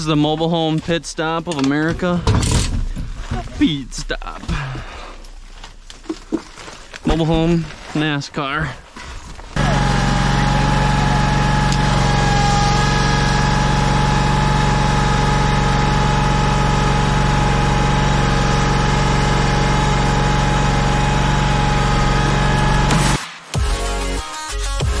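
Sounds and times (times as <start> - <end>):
machine engine humming with whine: 9.6 - 23.2.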